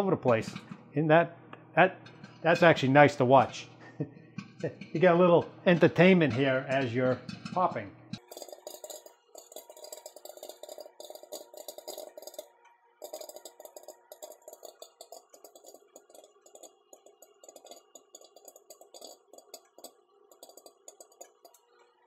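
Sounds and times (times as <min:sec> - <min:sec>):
popcorn kernels popping: 0:04.4 - 0:21.9.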